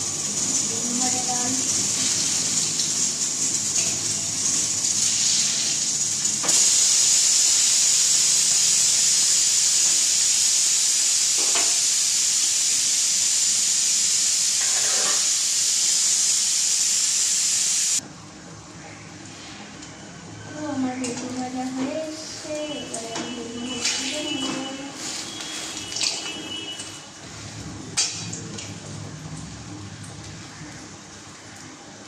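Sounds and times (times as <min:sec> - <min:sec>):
oil sizzling while frying: 0:00.0 - 0:18.0, 0:21.0 - 0:32.0.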